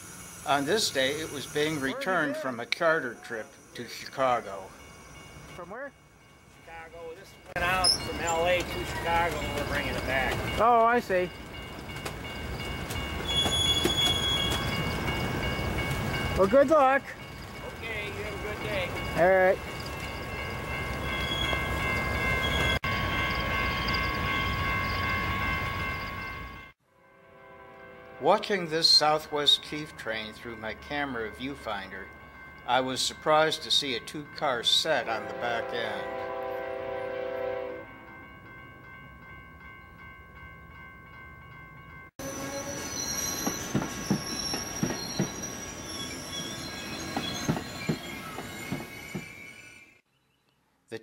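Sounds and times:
high ringing tones: 0.0 - 28.0, 35.6 - 50.0
high ringing with faint ticks: 2.6 - 5.6, 6.2 - 26.4, 29.5 - 35.3
train cars rumbling on rails: 6.8 - 26.7, 41.6 - 49.7.

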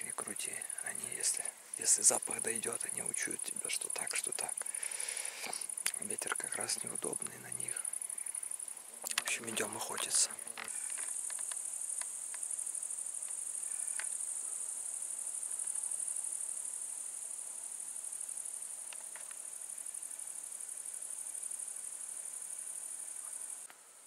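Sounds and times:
crickets trilling: 0.0 - 23.8
faint clicks: 5.4 - 6.6, 9.0 - 12.4.

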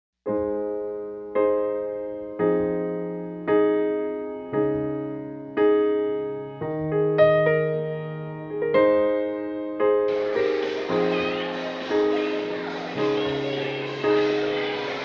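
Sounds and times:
slow solo piano chords: 0.3 - 15.0.

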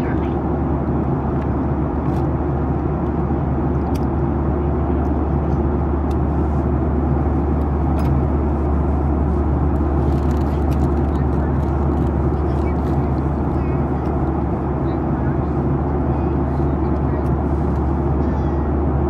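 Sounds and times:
airplane cabin drone: 0.0 - 19.0.

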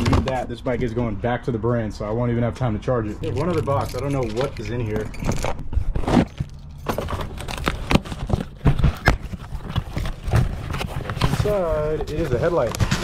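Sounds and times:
cardboard scrapes and rustles: 7.0 - 13.0
packing tape being slit: 7.2 - 11.3.

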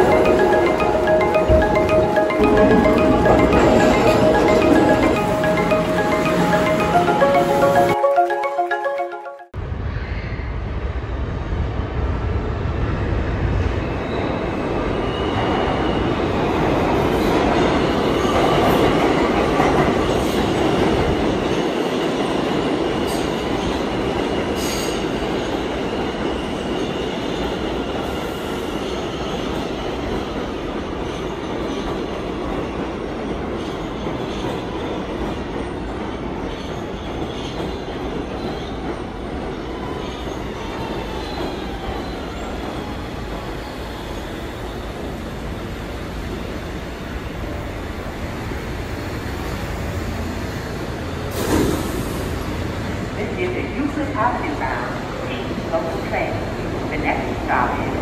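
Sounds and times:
train wheels rumbling and squealing: 13.4 - 53.2.

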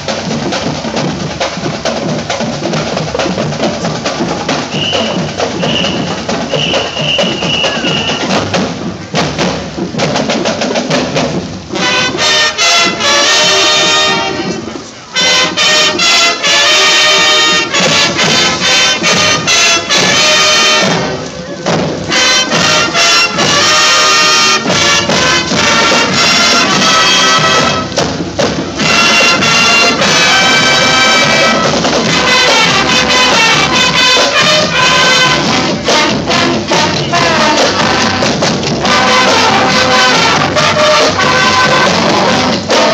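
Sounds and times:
brass playing a tune: 0.0 - 9.6, 10.8 - 42.9
marching band drums: 0.0 - 42.9.

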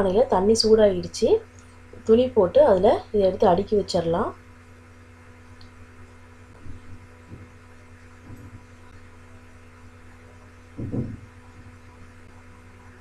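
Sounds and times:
steady low hum: 0.0 - 13.0
dough thudding on cloth: 10.8 - 11.3.

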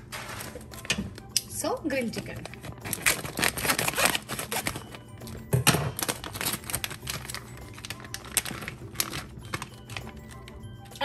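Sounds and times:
soft background music: 0.0 - 11.0
plastic bag crinkling: 1.9 - 11.0
scissors snipping plastic: 2.2 - 5.0, 5.6 - 10.6.

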